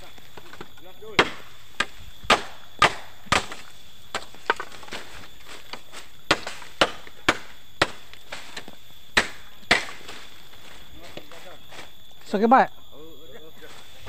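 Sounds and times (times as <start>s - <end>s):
machete chopping bamboo: 1.2s - 5.1s, 5.7s - 10.2s.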